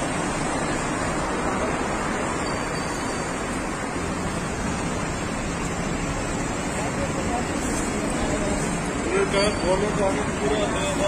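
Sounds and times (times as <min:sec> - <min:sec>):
traffic: 0:00.0 - 0:11.0
crowd noise: 0:04.0 - 0:11.0.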